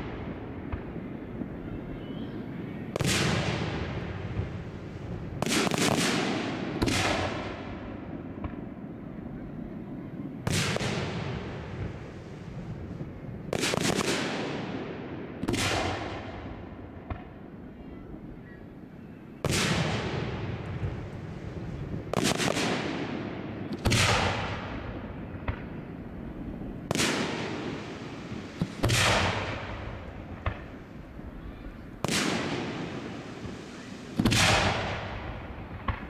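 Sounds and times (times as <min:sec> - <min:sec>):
firework shells booming: 0:26.6 - 0:36.0.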